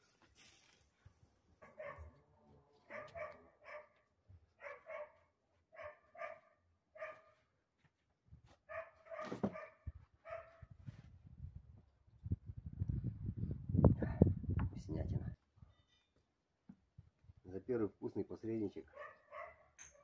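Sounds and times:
dog barking: 1.6s - 2.2s, 2.9s - 7.4s, 8.7s - 10.7s, 18.9s - 19.8s.

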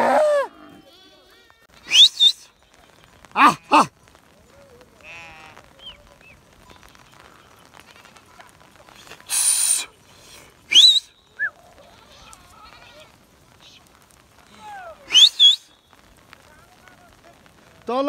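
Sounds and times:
sheep and goats bleating: 2.6s - 6.0s
loud hissing burst: 8.9s - 11.3s.

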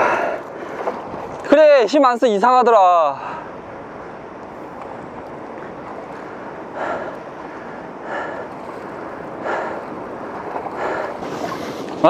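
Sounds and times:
person breathing hard: 0.0s - 0.5s, 6.4s - 11.9s
wind noise: 0.0s - 2.1s
sea water washing: 0.0s - 12.0s.

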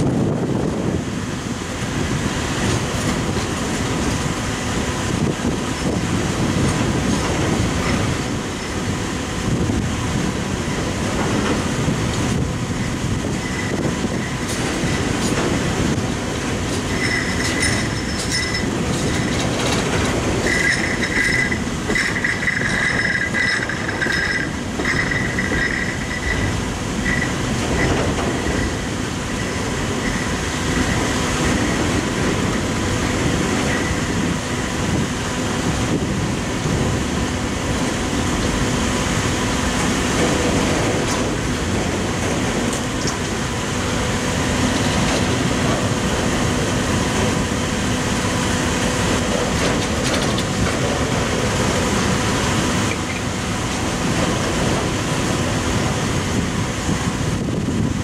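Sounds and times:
train wheels rumbling on track: 0.0s - 58.0s.

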